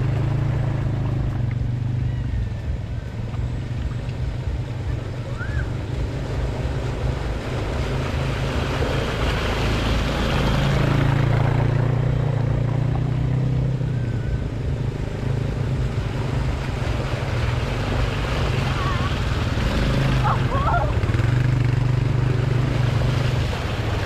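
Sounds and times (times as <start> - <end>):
atv engine running: 0.0 - 24.0.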